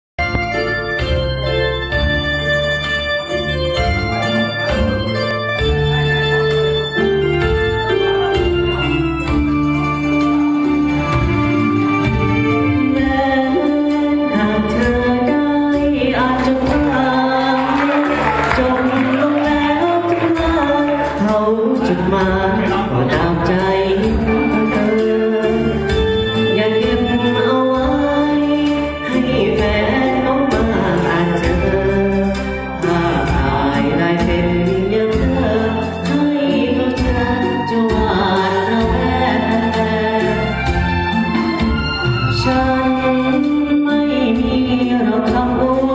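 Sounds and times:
karaoke backing track: 0:00.2 - 0:45.9
man singing into a microphone: 0:16.0 - 0:25.9.

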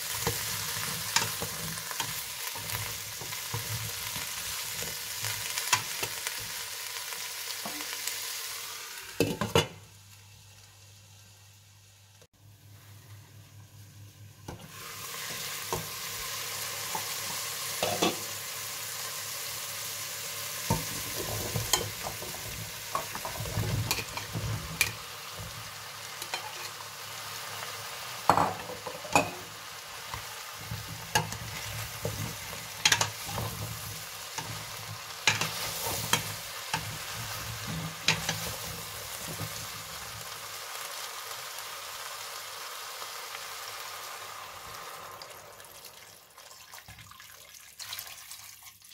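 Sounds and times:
vegetables sizzling in a pot: 0:00.0 - 0:48.8
spoon knocking and scraping pot: 0:17.8 - 0:18.3, 0:20.7 - 0:25.0, 0:26.2 - 0:26.7, 0:28.3 - 0:29.5, 0:30.1 - 0:38.6.

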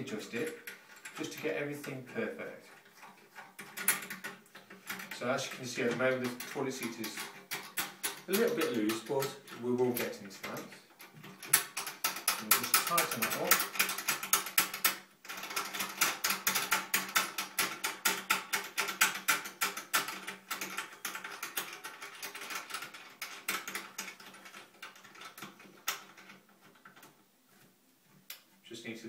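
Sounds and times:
rapid ratchet clicking: 0:02.9 - 0:26.1.

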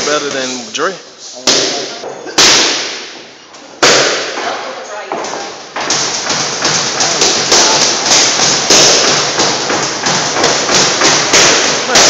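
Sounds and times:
boxing gloves hitting focus mitts: 0:03.8 - 0:12.0.

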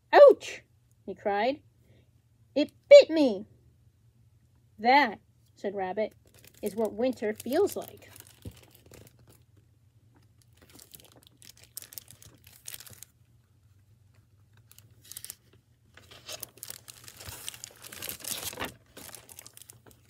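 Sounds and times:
faint low hum: 0:00.0 - 0:20.0
plastic book jacket crinkling: 0:06.1 - 0:20.0
book pages turning: 0:06.2 - 0:09.6, 0:10.2 - 0:20.0.

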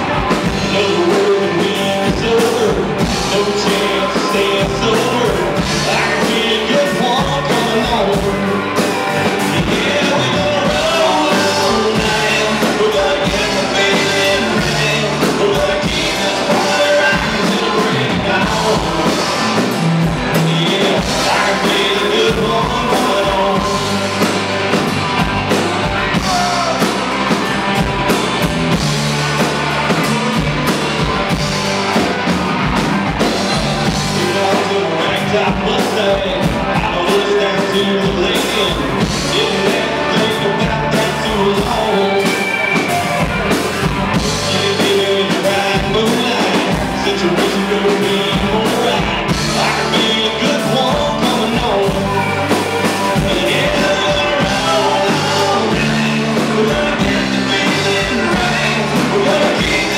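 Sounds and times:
bass guitar: 0:00.0 - 0:59.9
drum kit beat: 0:00.0 - 0:59.9
electric guitars: 0:00.0 - 0:59.9
lead vocal singing: 0:00.0 - 0:59.9.

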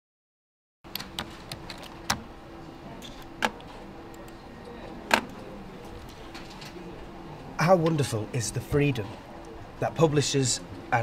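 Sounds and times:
computer keyboard typing: 0:00.9 - 0:02.2.

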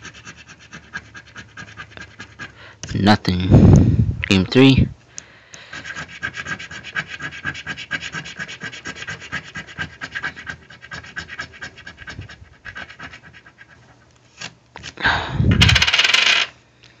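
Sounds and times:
coin scraping scratch-off ticket: 0:05.7 - 0:13.4, 0:15.6 - 0:16.5.

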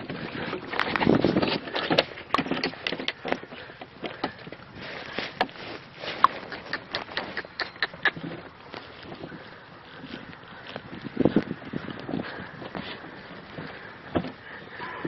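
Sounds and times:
cart rattling: 0:00.0 - 0:08.5.

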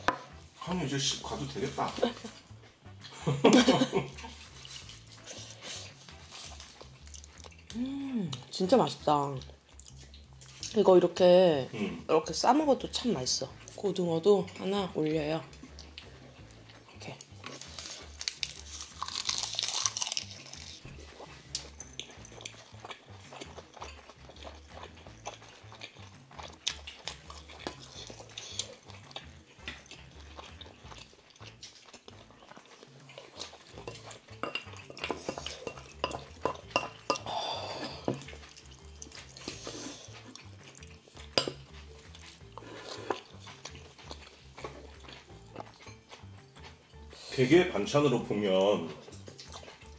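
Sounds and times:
chewing: 0:04.1 - 0:08.5, 0:09.4 - 0:10.9, 0:13.0 - 0:49.9
crunch of crisp seaweed: 0:17.5 - 0:20.8.

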